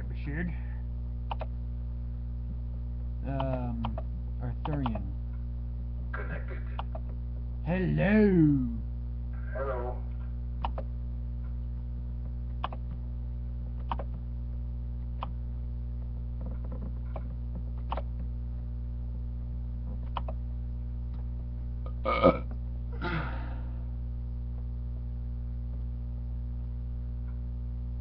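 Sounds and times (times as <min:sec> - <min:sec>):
electrical hum: 0:00.0 - 0:28.0
sharp isolated clicks: 0:01.2 - 0:01.5, 0:03.3 - 0:05.1, 0:06.7 - 0:07.2, 0:10.6 - 0:10.9, 0:12.5 - 0:13.0, 0:13.8 - 0:14.2, 0:15.2 - 0:15.4, 0:17.1 - 0:18.3, 0:20.0 - 0:20.4
person vocal sound: 0:07.7 - 0:08.8, 0:23.0 - 0:23.7.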